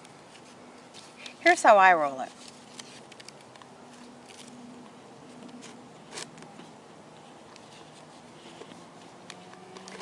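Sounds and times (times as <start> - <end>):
tortilla rustling: 0.0 - 1.6, 2.2 - 10.0
faint steady hum: 0.0 - 10.0
paper crinkle: 2.3 - 4.6.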